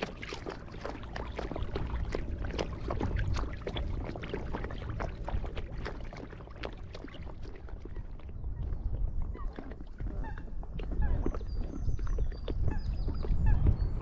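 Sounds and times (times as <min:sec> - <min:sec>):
water splashing and lapping: 0:00.0 - 0:14.0
wind rumble on microphone: 0:00.0 - 0:14.0.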